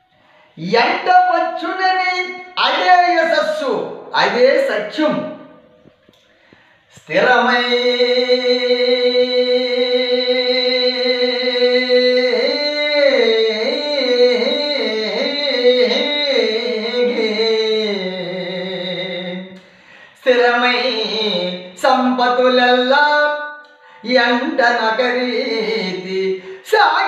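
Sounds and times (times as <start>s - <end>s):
man singing ornamented notes: 6.9s - 19.6s, 20.2s - 27.0s.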